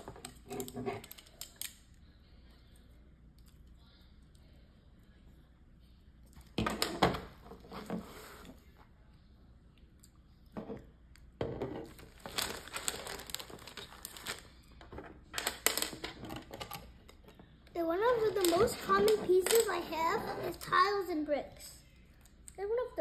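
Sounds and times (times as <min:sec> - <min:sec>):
plastic bricks rummaged and clicking: 0:11.9 - 0:14.4, 0:18.2 - 0:19.7.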